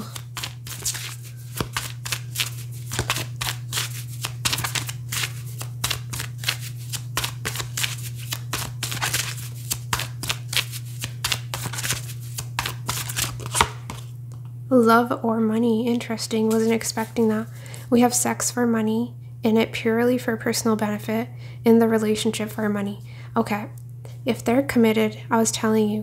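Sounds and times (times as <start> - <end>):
cards being shuffled: 0.0 - 14.2, 16.4 - 17.7
steady low hum: 0.0 - 26.0.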